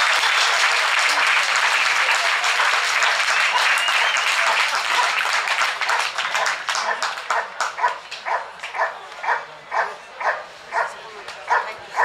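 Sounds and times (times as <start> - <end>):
audience applause: 0.0 - 8.9
dog barking: 6.8 - 12.0.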